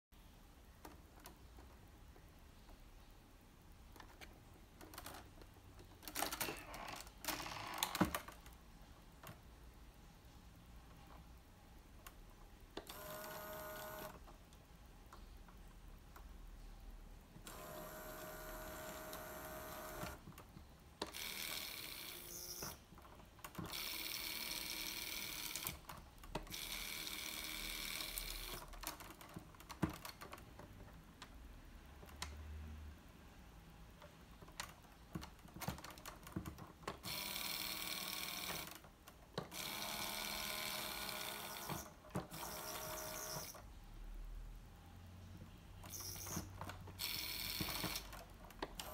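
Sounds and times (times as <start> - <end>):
electric motors whirring: 17.5 - 20.2.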